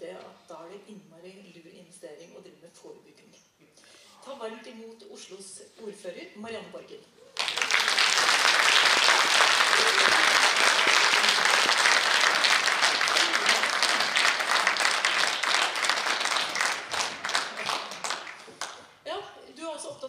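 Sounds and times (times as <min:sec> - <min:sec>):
audience applauding: 0:07.4 - 0:18.8.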